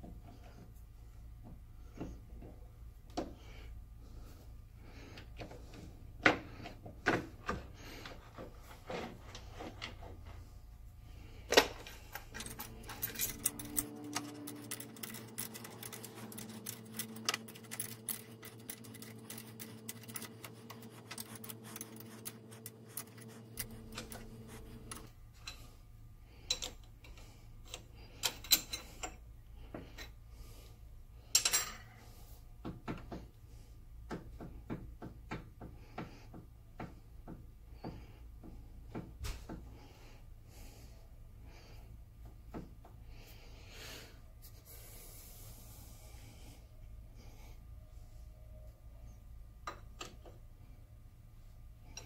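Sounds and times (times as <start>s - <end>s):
faint steady hum: 0.0s - 52.0s
metallic clicks and clinks: 11.8s - 21.9s.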